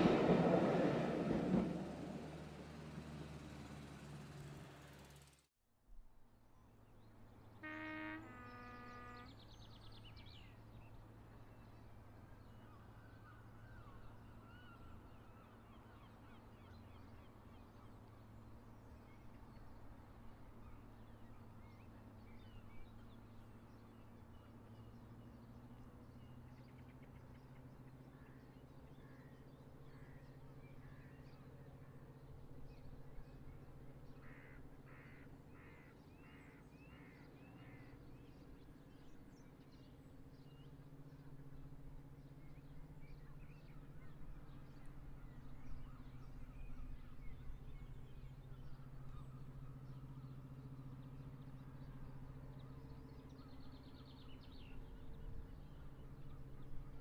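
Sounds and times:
distant two-tone locomotive horn: 7.4 - 9.9.

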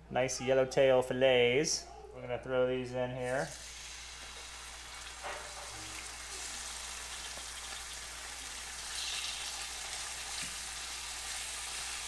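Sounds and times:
fish sizzling in hot oil: 3.5 - 12.0.

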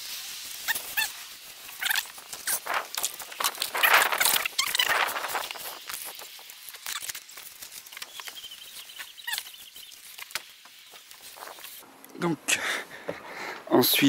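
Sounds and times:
short squeaks: 3.8 - 6.1, 7.9 - 10.2.

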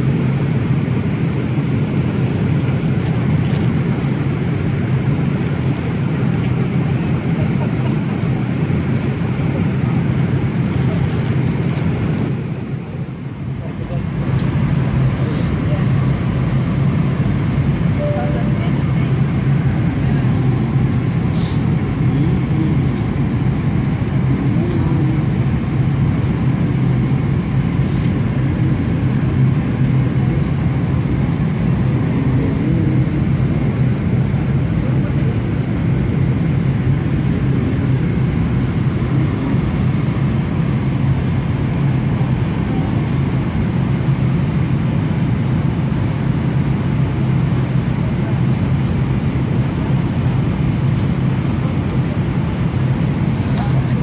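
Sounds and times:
jet engine drone: 0.0 - 54.0
faint voices: 3.9 - 43.9, 52.7 - 54.0
rushing air: 21.1 - 21.8.

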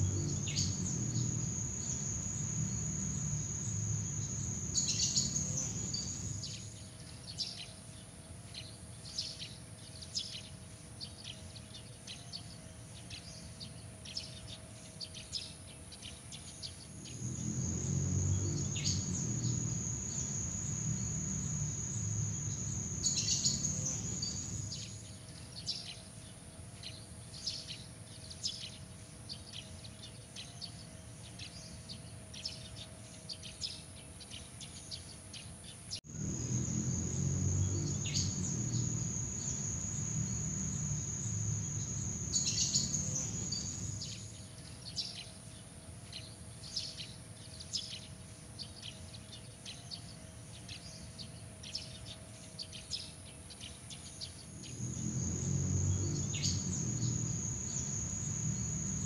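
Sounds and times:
crickets trilling: 0.0 - 6.8, 16.7 - 25.2, 36.0 - 44.5, 54.4 - 59.0.

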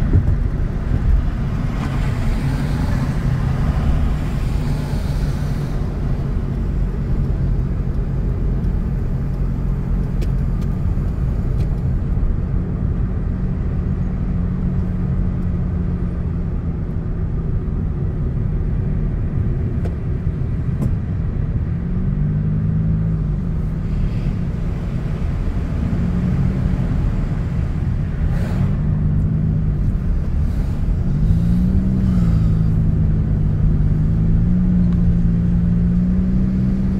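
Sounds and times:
vehicle engine: 0.0 - 36.9.

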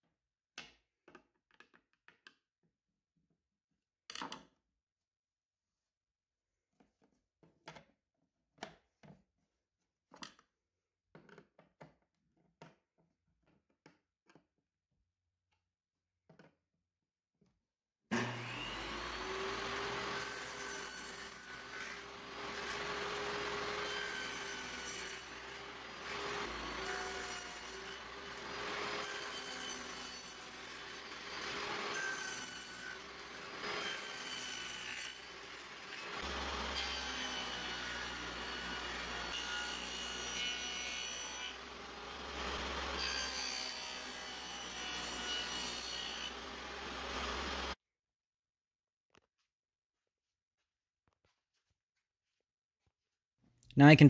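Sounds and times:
table saw cutting wood: 18.1 - 47.8.

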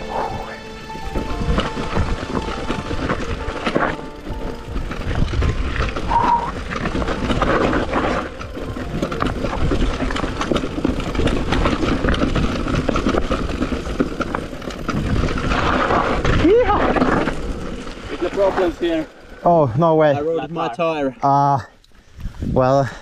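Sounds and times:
wind rumbling on microphone: 0.0 - 18.7, 22.0 - 23.0
tyres crunching over loose stones: 0.0 - 19.2
bike chain and frame rattling: 0.0 - 23.0.

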